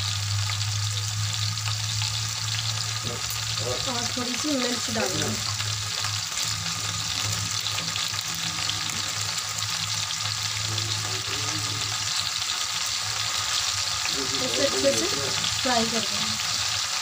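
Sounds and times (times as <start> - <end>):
mushrooms sizzling in oil: 0.0 - 17.0.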